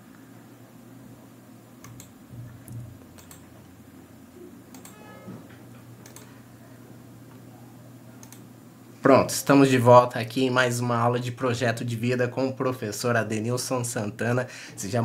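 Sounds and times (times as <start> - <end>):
faint low hum: 0.0 - 15.0
computer keyboard and mouse clicks: 1.8 - 3.5, 4.7 - 5.0, 5.7 - 6.4, 8.2 - 8.5.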